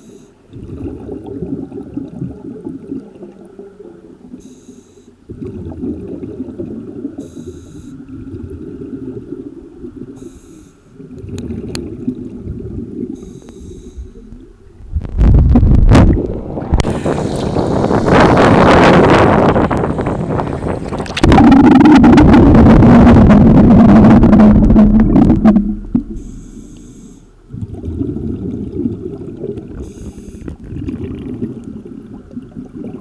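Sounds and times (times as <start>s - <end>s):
rumbling bubbles: 0.4s - 4.4s, 5.3s - 10.2s, 10.9s - 33.0s
regulator breathing hiss: 10.2s - 10.9s, 13.2s - 14.4s, 16.8s - 18.9s, 26.1s - 27.4s, 29.8s - 30.6s
rush of water and wind: 14.3s - 26.3s.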